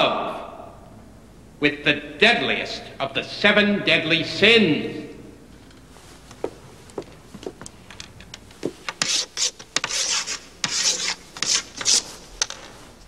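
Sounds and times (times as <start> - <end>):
chalk scratching on a blackboard: 9.0 - 12.2.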